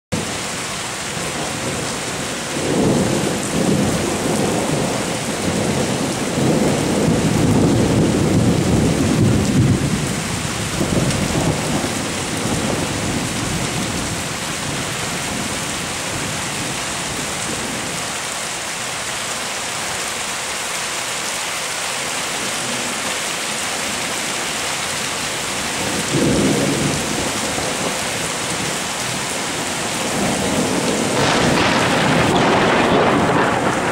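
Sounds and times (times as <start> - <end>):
rain hissing: 0.2 - 33.9
thunder rumbling: 1.2 - 18.0, 25.4 - 33.9.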